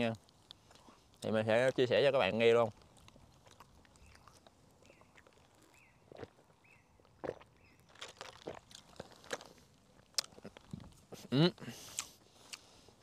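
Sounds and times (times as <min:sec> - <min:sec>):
bird chirping: 0:04.0 - 0:07.0, 0:07.6 - 0:08.0.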